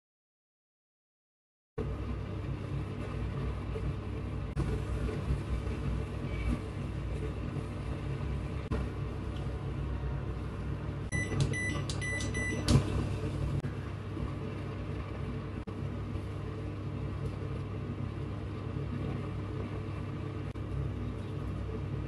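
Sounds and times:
steady low hum: 0:01.8 - 0:22.0.

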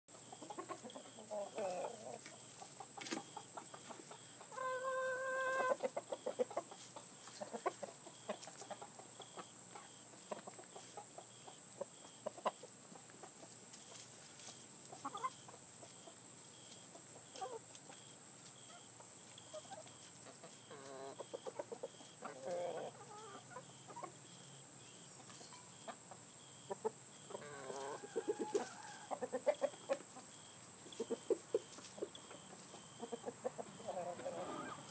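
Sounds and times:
chickens clucking and calling: 0:00.1 - 0:34.9
high-pitched chicken call: 0:04.5 - 0:05.8, 0:33.9 - 0:34.9.

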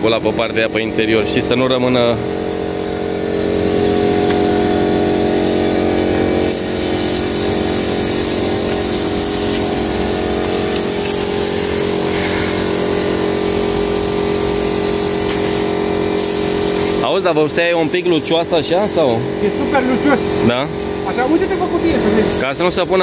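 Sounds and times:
air compressor humming: 0:00.0 - 0:23.0
paint spray gun hissing: 0:06.5 - 0:19.3, 0:22.2 - 0:23.0.

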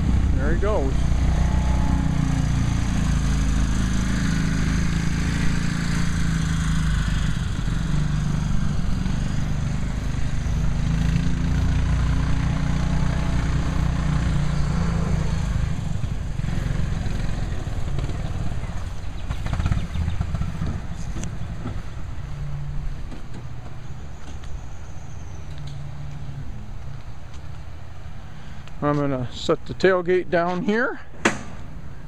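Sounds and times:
small car engine revving: 0:00.0 - 0:22.7.

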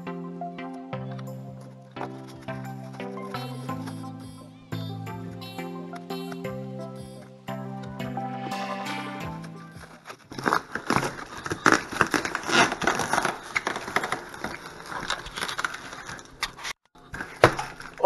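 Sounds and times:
plastic wrap crinkling: 0:10.2 - 0:18.0.

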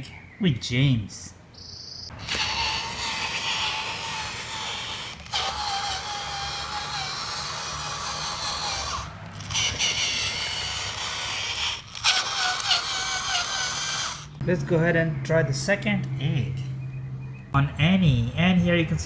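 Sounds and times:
toy train motor whining: 0:02.1 - 0:14.4.

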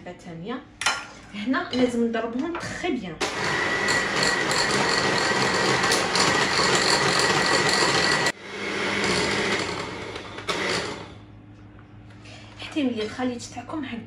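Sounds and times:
electric hand mixer running: 0:03.2 - 0:11.2.

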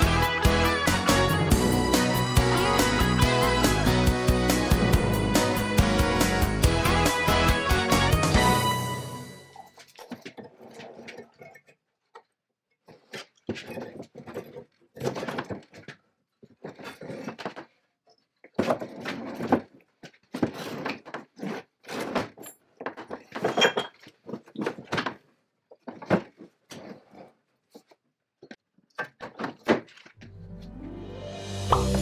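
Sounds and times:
metal wrench clanking on wood: 0:09.7 - 0:17.7, 0:21.9 - 0:24.8.

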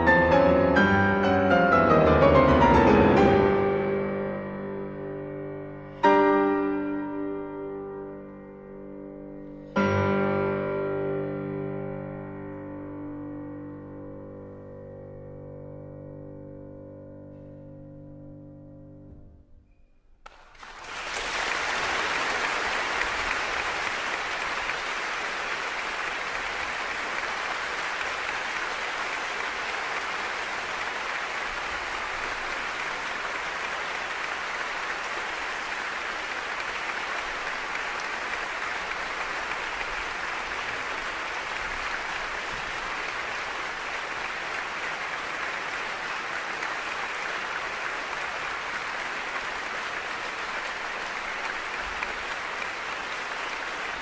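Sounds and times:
audience applauding: 0:20.2 - 0:54.0.

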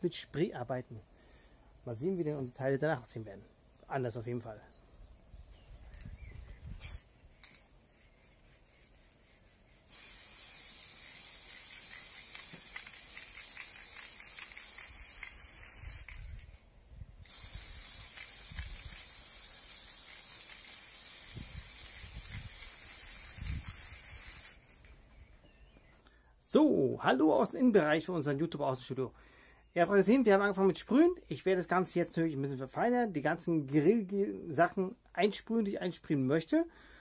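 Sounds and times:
aerosol spray can hissing: 0:06.4 - 0:16.4, 0:17.2 - 0:24.8.

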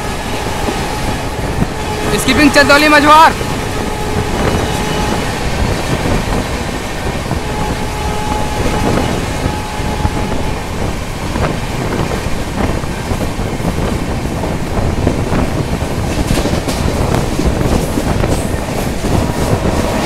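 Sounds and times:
steady whine: 0:00.0 - 0:12.4
wheels rumbling on rail: 0:00.0 - 0:20.0
wind buffeting microphone: 0:00.0 - 0:20.0.

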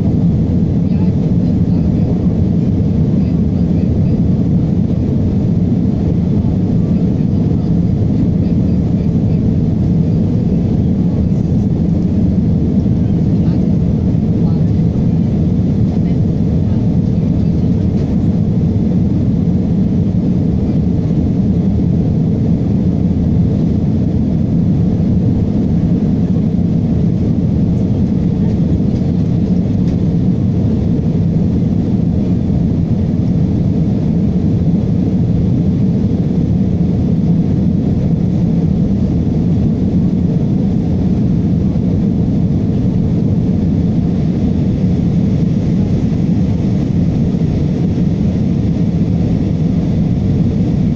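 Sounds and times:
airliner cabin engine rush: 0:00.0 - 0:50.9.

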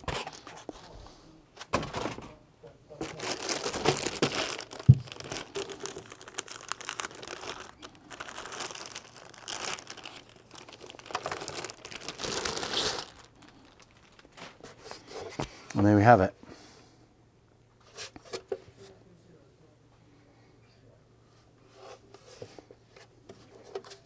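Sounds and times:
plastic bag crinkling: 0:03.0 - 0:14.6.

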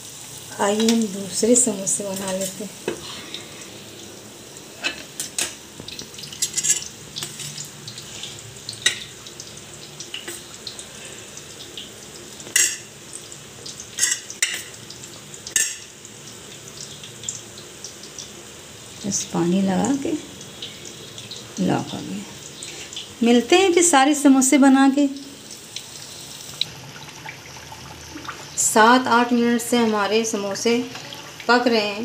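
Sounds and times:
spoon scraping steel plate: 0:06.4 - 0:07.6.

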